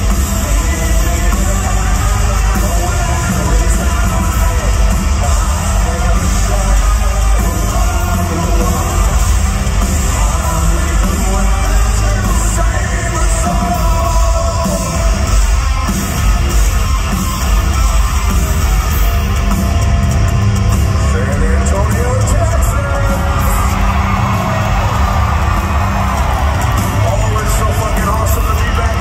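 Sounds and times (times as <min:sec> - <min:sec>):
sung vocals: 0:00.0 - 0:15.6
live hard rock band: 0:00.0 - 0:29.0.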